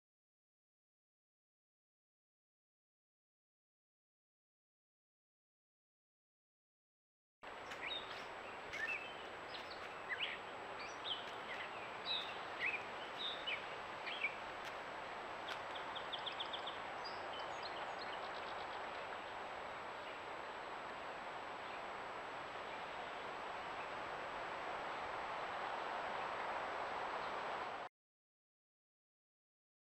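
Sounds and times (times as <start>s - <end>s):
background hiss: 7.5s - 27.9s
birds chirping and whistling: 7.8s - 14.4s.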